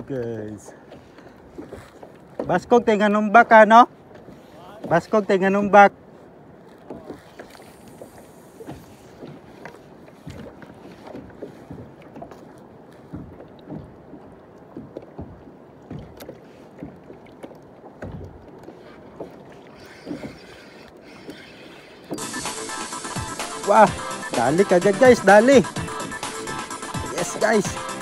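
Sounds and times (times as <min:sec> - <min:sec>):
waves lapping against kayak hull: 0:00.0 - 0:28.0
wind: 0:00.0 - 0:28.0
water wash: 0:13.2 - 0:28.0.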